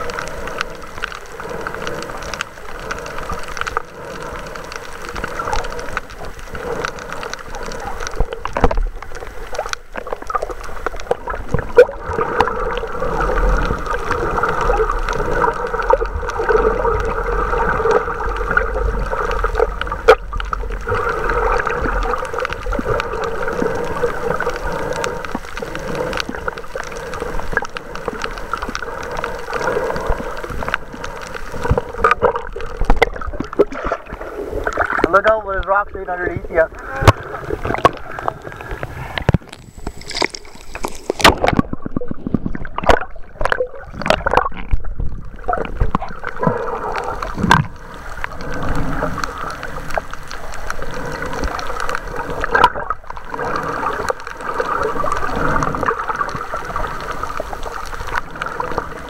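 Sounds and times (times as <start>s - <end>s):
underwater water rush: 0.0s - 59.0s.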